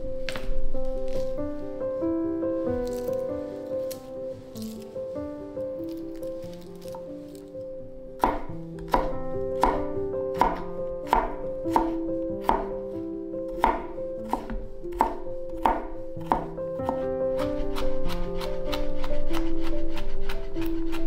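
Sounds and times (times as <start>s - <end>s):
background music: 0.0s - 21.0s
knife chopping on cutting board: 8.2s - 12.7s, 13.5s - 21.0s.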